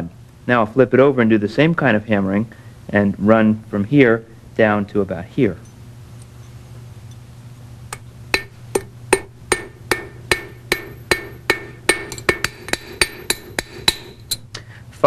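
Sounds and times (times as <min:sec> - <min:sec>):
hammer striking metal on anvil: 0:07.9 - 0:14.4.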